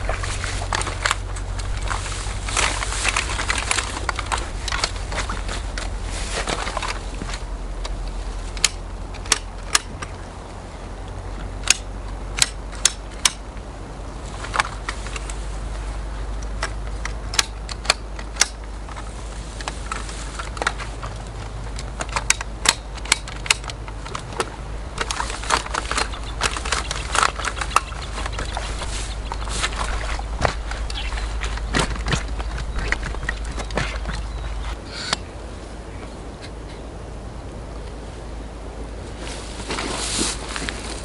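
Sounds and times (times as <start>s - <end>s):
low rumble: 0.0s - 17.3s, 23.7s - 41.0s
metal clicks of folding chair: 8.6s - 10.2s, 16.4s - 19.0s, 19.6s - 28.8s.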